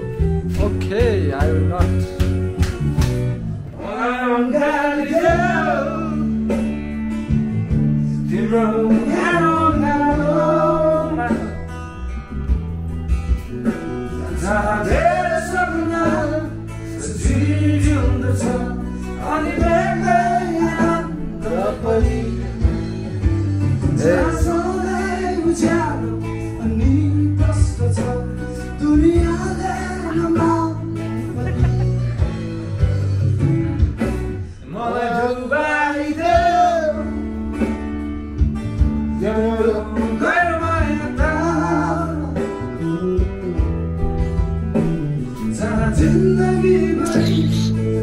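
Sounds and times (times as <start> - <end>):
bass line: 0.0 - 35.1, 36.2 - 48.0
guitar: 0.0 - 48.0
person singing: 3.7 - 6.6, 8.2 - 11.7, 14.2 - 22.8, 45.4 - 48.0.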